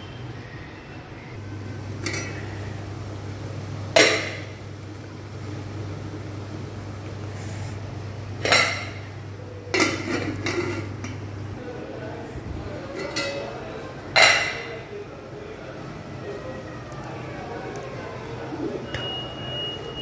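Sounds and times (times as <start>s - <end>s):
metal pot lid clanking: 2.0s - 2.6s, 3.9s - 4.5s, 8.4s - 9.1s, 9.7s - 11.2s
lid clattering on pot: 9.7s - 11.2s.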